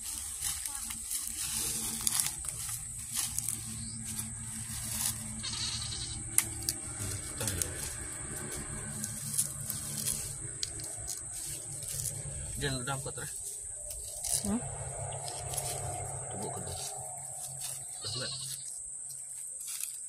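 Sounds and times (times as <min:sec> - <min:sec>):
goats bleating: 0:05.1 - 0:06.3, 0:17.8 - 0:18.7
bamboo sheaths snapping: 0:06.3 - 0:12.2.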